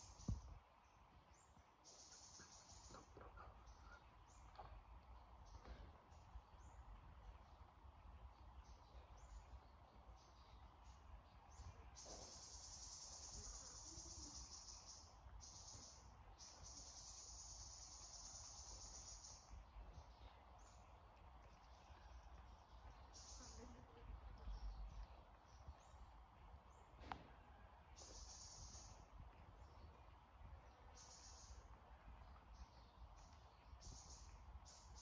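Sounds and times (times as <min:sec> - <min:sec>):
insect trilling: 0:12.0 - 0:16.0.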